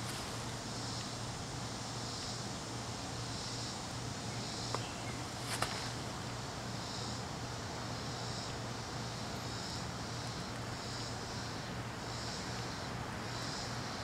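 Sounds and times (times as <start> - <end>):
constant low hum: 0.0 - 14.0
faint high hiss: 0.0 - 14.0.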